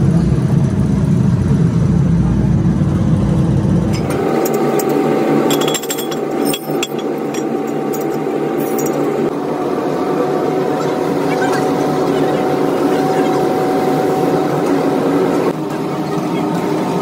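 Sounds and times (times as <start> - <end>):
low machine rumble: 0.0 - 17.0
metallic clinks: 4.0 - 9.2.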